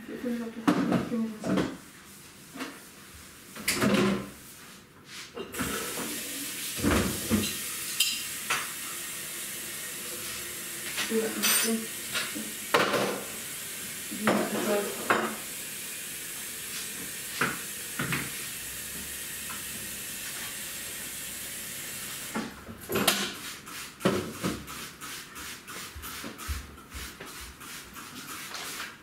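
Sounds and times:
electric kettle hissing: 0:05.6 - 0:22.6
crockery clinking: 0:07.4 - 0:08.3, 0:11.4 - 0:11.8.

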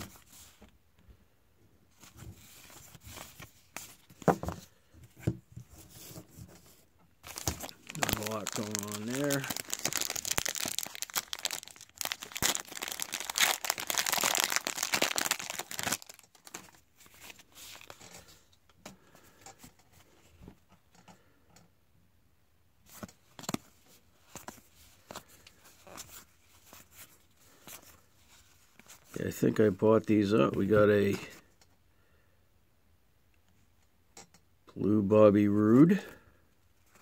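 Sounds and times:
card pack wrapper tearing and crinkling: 0:07.2 - 0:18.0.

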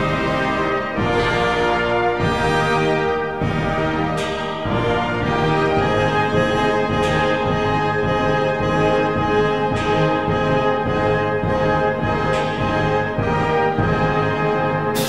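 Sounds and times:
brass band music: 0:00.0 - 0:15.0.

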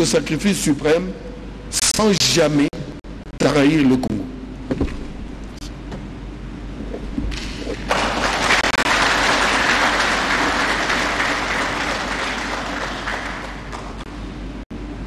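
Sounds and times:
audience applauding: 0:07.8 - 0:14.1.

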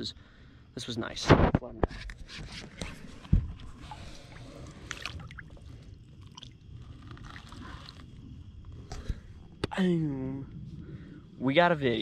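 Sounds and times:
water splashing and sloshing: 0:02.9 - 0:09.1.

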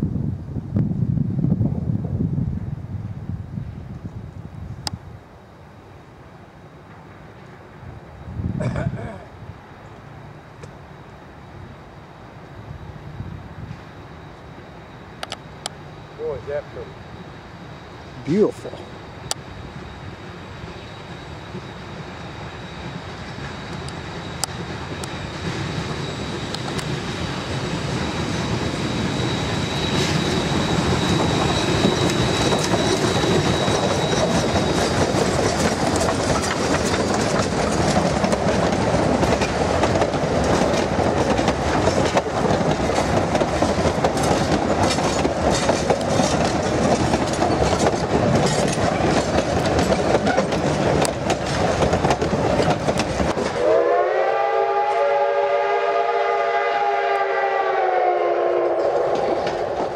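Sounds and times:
steam train passing: 0:00.1 - 0:59.9
faint high whine: 0:02.4 - 0:37.0
wheels clacking over rail joints: 0:27.6 - 0:53.6.

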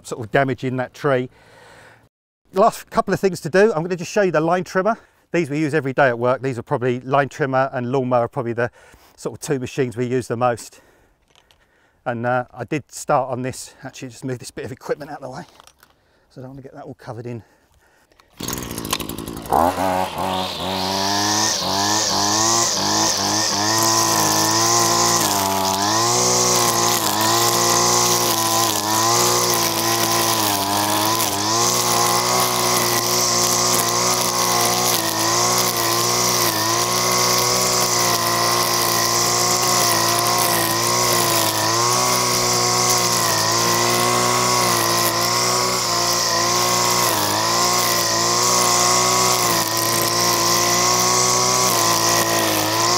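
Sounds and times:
line trimmer engine revving: 0:18.2 - 0:52.9.

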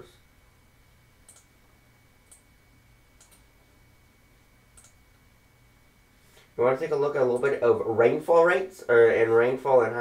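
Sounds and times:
low background hum: 0:00.0 - 0:10.0
computer mouse clicks: 0:01.2 - 0:01.5, 0:03.2 - 0:03.5, 0:04.8 - 0:05.0.

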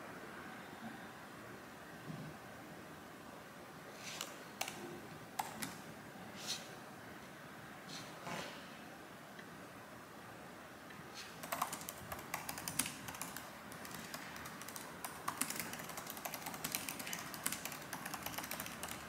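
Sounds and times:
laptop keyboard typing: 0:04.2 - 0:04.8, 0:05.4 - 0:05.8, 0:11.4 - 0:19.0.

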